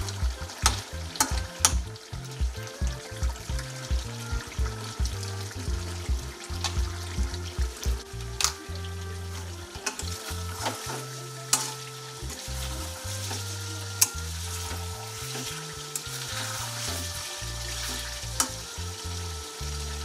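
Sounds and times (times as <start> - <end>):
chicken sizzling in a pan: 3.6 - 20.0
metal spatula stirring: 9.3 - 18.6.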